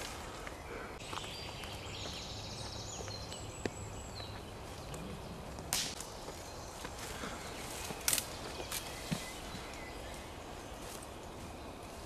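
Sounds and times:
dry wood snapping: 5.6 - 6.1, 8.0 - 8.4
footsteps in leaf litter: 6.2 - 12.0.

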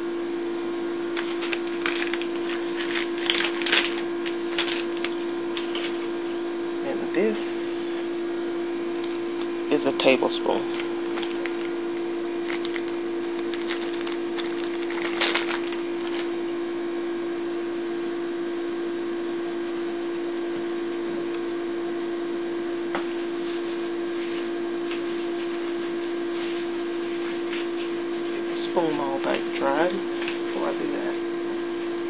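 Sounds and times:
steady appliance hum: 0.0 - 32.0
plastic bag crinkling: 1.2 - 6.1, 10.7 - 16.4.

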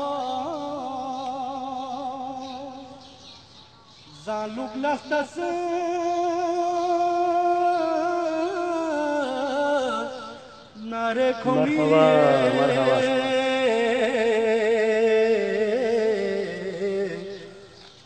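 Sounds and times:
man singing long wavering notes: 4.2 - 17.7.

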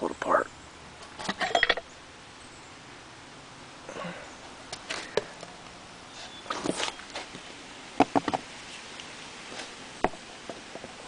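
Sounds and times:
metal parts scraping: 1.2 - 1.8.

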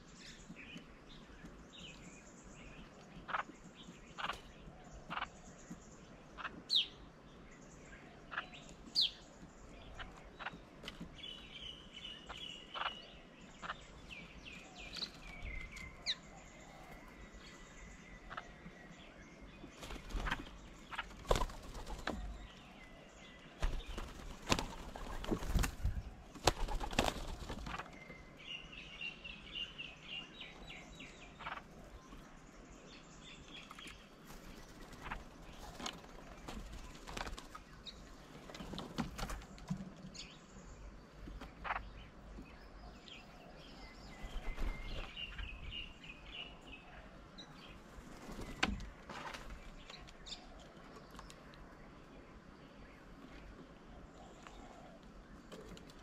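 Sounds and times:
dove wings flapping: 19.8 - 22.3, 23.6 - 27.9, 34.2 - 37.6.

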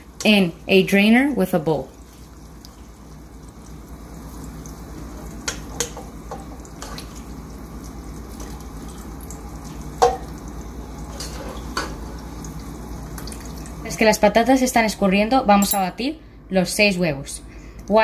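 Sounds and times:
oil simmering hiss: 0.0 - 14.6
spoon clattering on pan and colander: 10.0 - 10.3.

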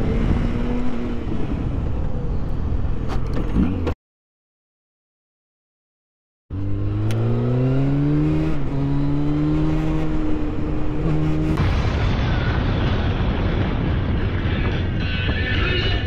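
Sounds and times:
motorcycle engine accelerating: 0.0 - 2.8, 6.5 - 11.6
wind and road noise: 0.0 - 4.0, 6.5 - 16.0.

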